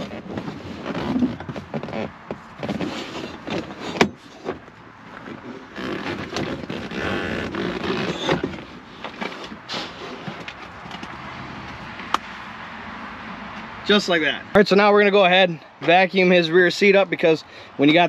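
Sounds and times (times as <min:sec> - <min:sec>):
rubbing and scraping: 0:00.0 - 0:11.1
metal seat knocking and clunking: 0:00.1 - 0:05.4.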